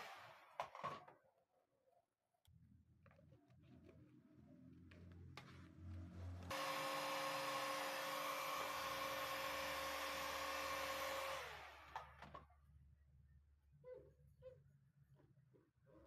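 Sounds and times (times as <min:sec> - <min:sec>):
hot air gun fan whine: 0:06.5 - 0:12.2.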